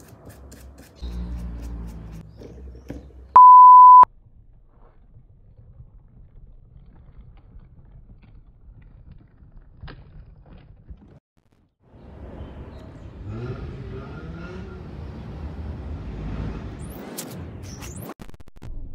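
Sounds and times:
high-pitched electronic beep: 0:03.4 - 0:04.1.

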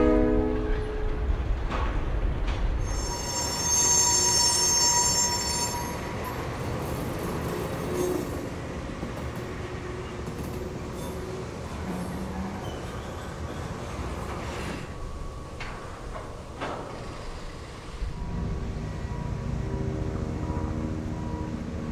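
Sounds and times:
train wheels rumbling on rails: 0:00.0 - 0:21.9
high wheel squeal: 0:02.8 - 0:06.4.

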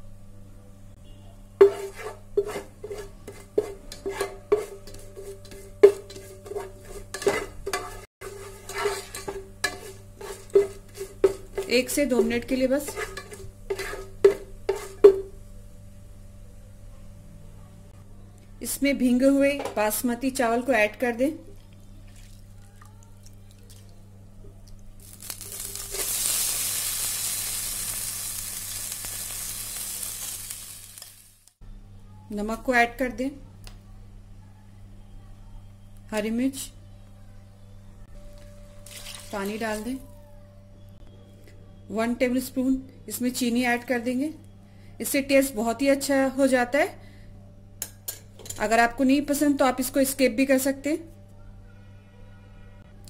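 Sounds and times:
spices sauteing in oil: 0:01.3 - 0:15.7, 0:24.9 - 0:31.6
spatula scraping saucepan: 0:01.6 - 0:15.2
rice sizzling in hot ghee: 0:25.0 - 0:31.6.

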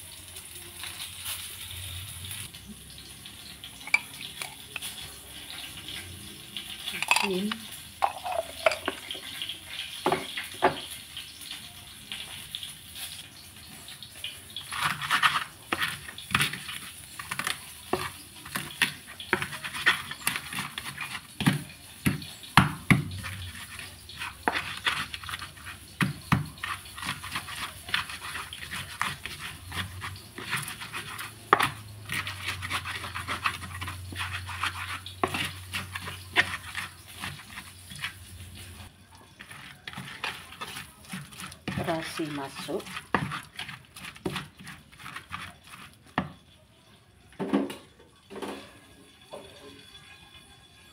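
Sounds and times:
stone pestle knocking on clay: 0:21.4 - 0:23.2
wet gritty scraping: 0:23.2 - 0:46.2.

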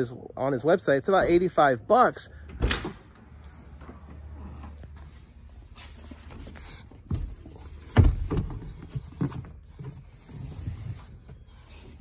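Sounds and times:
handling thumps and knocks: 0:07.0 - 0:10.2.

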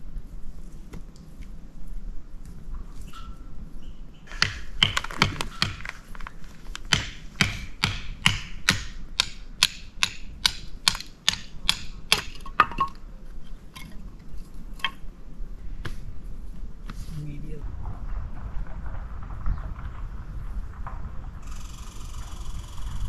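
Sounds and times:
blade striking firewood: 0:04.3 - 0:13.0.

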